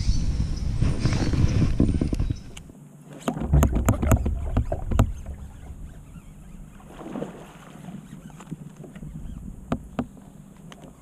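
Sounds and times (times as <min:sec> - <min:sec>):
faint water: 0:00.0 - 0:11.0
wind: 0:00.0 - 0:11.0
knocks and thumps on kayak: 0:03.2 - 0:11.0.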